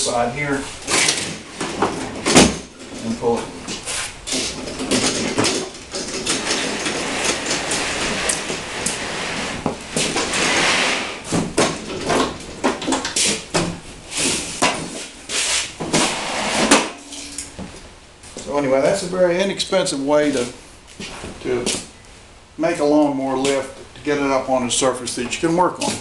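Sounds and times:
mower and tables knocking: 3.7 - 8.7
mower wheels rolling on table: 4.3 - 13.4.

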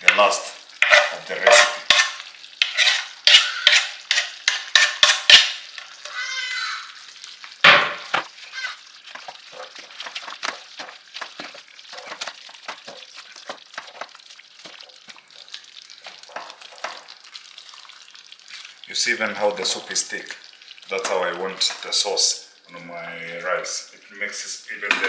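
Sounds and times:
sauce simmering with pops: 0.0 - 24.2
spoon knocking against pot: 0.8 - 5.7.

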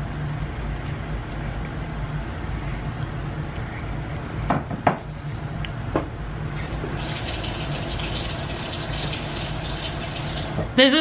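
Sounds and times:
water running from a tap: 7.0 - 10.6.

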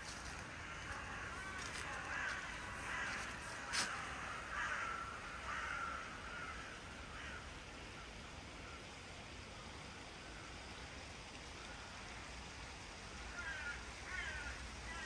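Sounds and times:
crows cawing: 0.0 - 8.8, 13.3 - 15.0
steady background hiss: 0.0 - 15.0.

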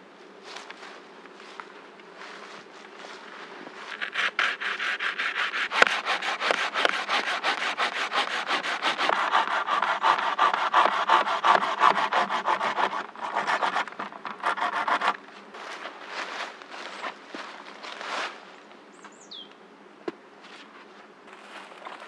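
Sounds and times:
hand saw cutting wood: 3.9 - 15.2.

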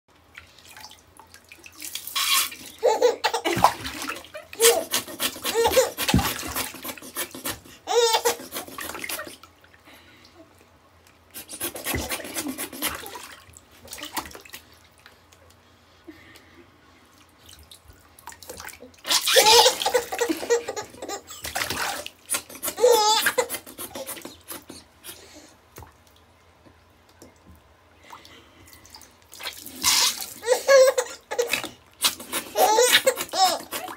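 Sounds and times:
bathwater splashing: 0.3 - 9.7, 11.4 - 15.1, 17.4 - 24.8, 28.2 - 33.9
baby giggling: 2.7 - 9.4, 19.1 - 21.7, 22.4 - 24.7, 29.9 - 33.9.

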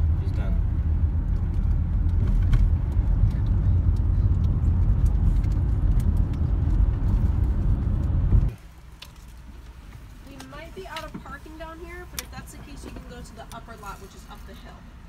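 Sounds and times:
car cabin road rumble: 0.0 - 15.0
low hum of car rolling: 0.0 - 15.0.

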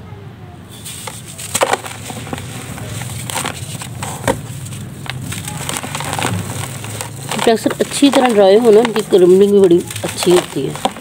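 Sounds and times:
dry mud crunching and cracking: 1.3 - 11.0.

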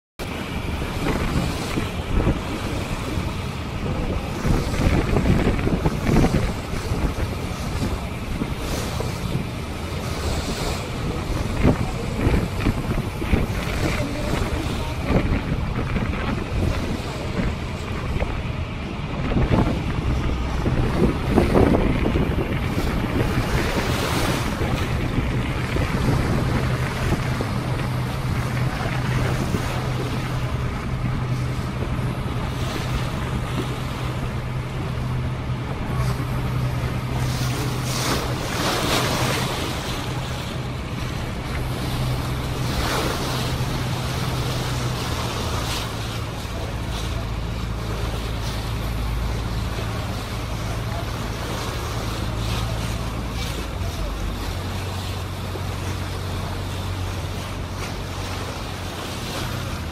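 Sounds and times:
boat engine humming: 0.2 - 59.9
water washing along hull: 0.2 - 59.9
wind buffeting microphone: 0.2 - 59.9.

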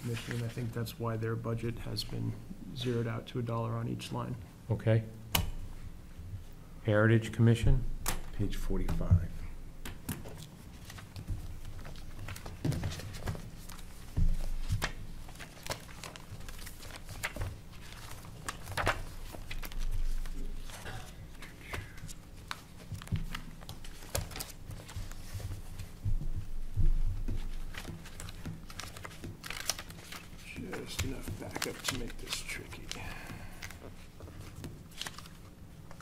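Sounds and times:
pages turning: 0.0 - 0.6, 10.0 - 26.0, 27.2 - 36.0
paper rustling: 0.0 - 0.7, 10.1 - 36.0
steady low hum: 0.0 - 36.0.

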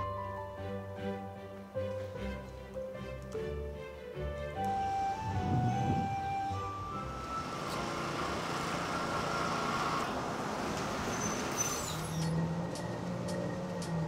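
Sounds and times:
city street traffic: 3.4 - 14.0
bus engine humming: 3.5 - 14.0.

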